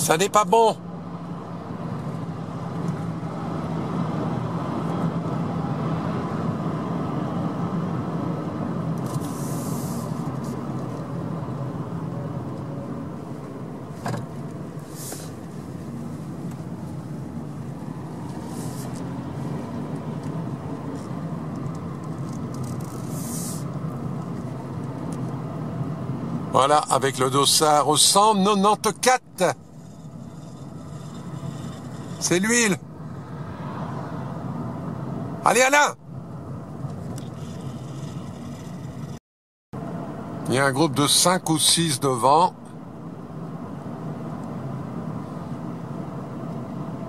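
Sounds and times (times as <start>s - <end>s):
car engine and road hum: 0.0s - 39.2s, 39.8s - 47.0s.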